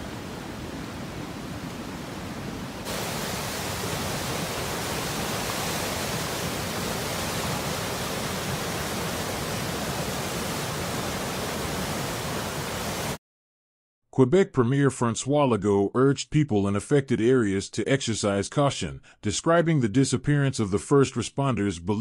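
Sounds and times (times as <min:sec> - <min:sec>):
river water rushing: 0:00.0 - 0:13.2.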